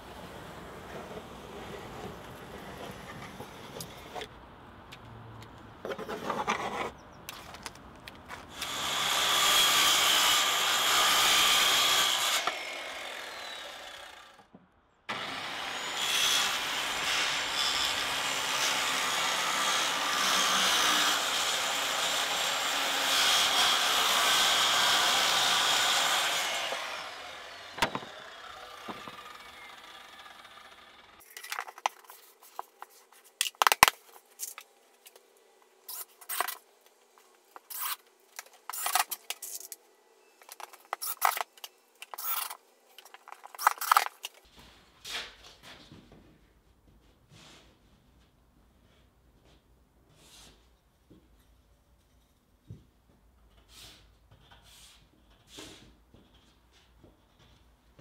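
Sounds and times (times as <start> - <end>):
circular saw cutting plywood: 8.5 - 14.5, 15.1 - 31.2.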